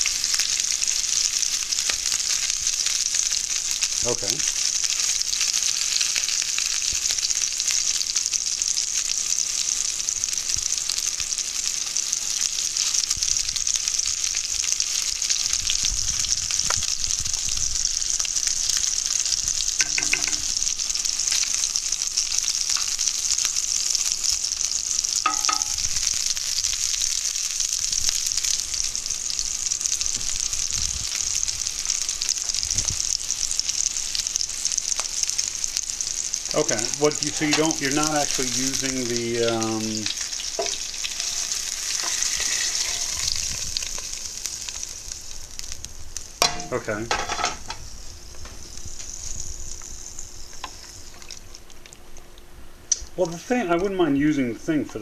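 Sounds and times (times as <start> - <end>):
meatballs sizzling in oil: 0.0 - 55.0
wooden spoon stirring in a pan: 39.5 - 44.2.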